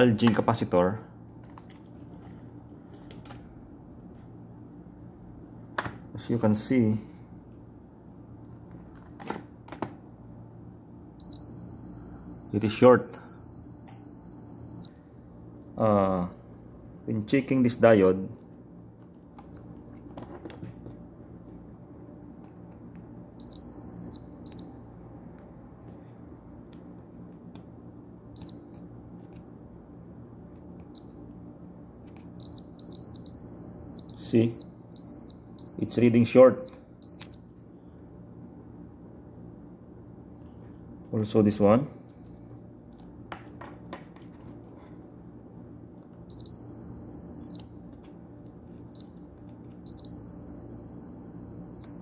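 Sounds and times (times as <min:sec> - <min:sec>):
multimeter beeping: 0:11.2 - 0:14.9, 0:23.4 - 0:24.7, 0:28.4 - 0:28.6, 0:32.4 - 0:37.5, 0:46.3 - 0:47.7, 0:49.0 - 0:49.2, 0:49.8 - 0:52.0.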